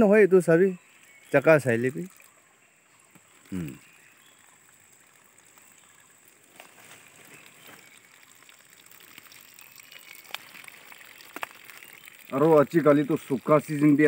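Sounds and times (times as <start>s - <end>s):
water trickling: 0.0s - 14.0s.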